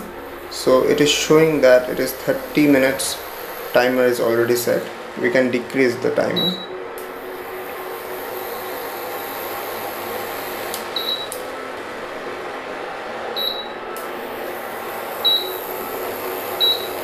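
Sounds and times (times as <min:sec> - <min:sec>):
cooling fan whir: 0:00.0 - 0:17.0
short high beeps: 0:06.4 - 0:06.7.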